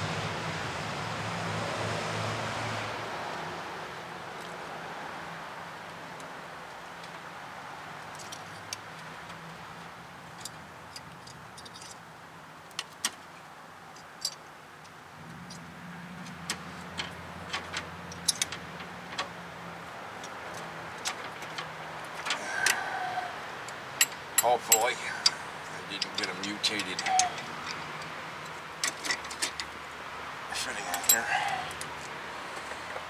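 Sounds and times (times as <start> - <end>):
metal tools clinking: 10.4 - 12.0, 16.3 - 19.3, 24.0 - 29.7, 30.6 - 32.0.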